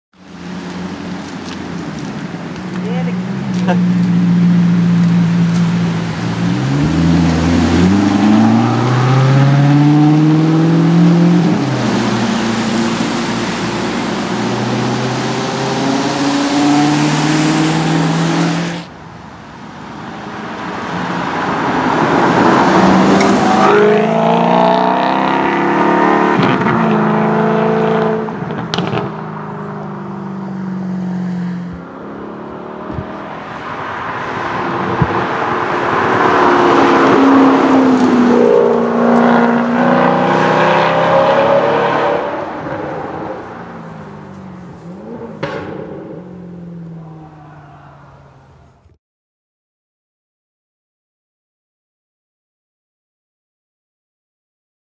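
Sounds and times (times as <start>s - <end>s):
car engine revving through gears: 3.5s - 18.9s, 21.3s - 29.2s, 31.0s - 43.4s
exhaust crack: 28.3s - 29.9s, 44.0s - 47.8s.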